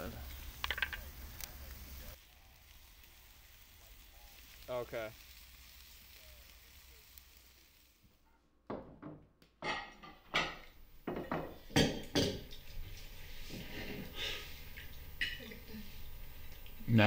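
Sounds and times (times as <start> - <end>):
dishes and cutlery clinking: 9.6 - 15.7.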